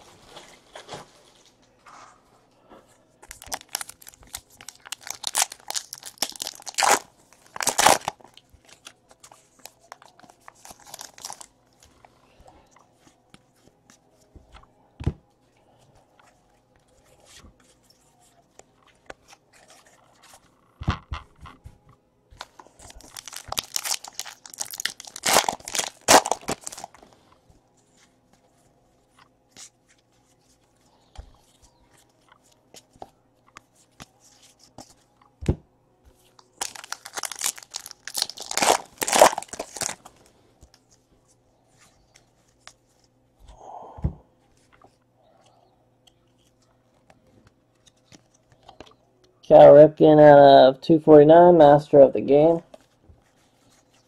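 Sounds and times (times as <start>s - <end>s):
foil wrappers tearing and crinkling: 3.3s - 8.9s, 9.6s - 11.5s, 22.4s - 27.1s, 36.5s - 40.3s.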